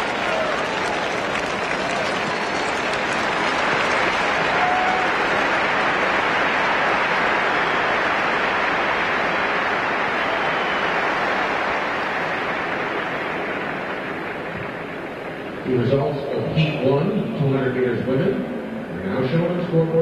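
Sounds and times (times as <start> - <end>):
stadium crowd cheering and applauding: 0.0 - 17.6.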